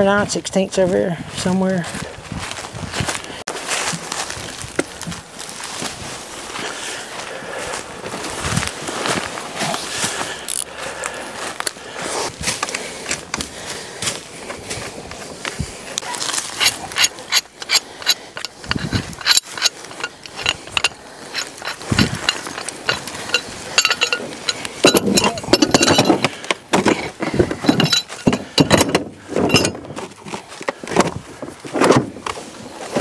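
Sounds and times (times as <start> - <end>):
metal parts clinking: 16.4 - 29.8
ratchet clicking: 16.6 - 26.2.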